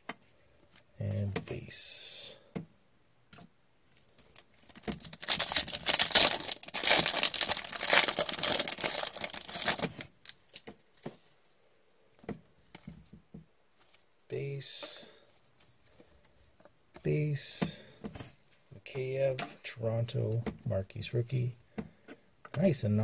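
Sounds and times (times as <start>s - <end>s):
foil wrapper tearing and crinkling: 4.3s - 10.6s.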